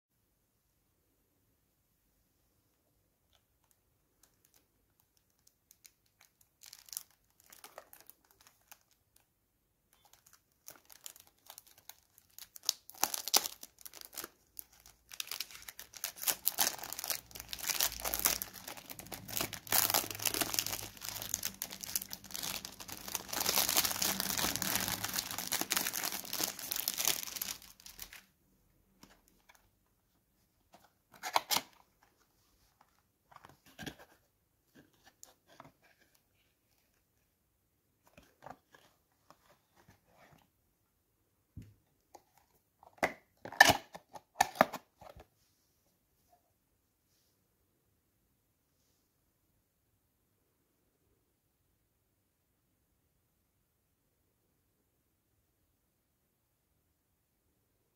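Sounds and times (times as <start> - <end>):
cellophane wrap crinkling: 3.6 - 9.2, 9.9 - 28.3.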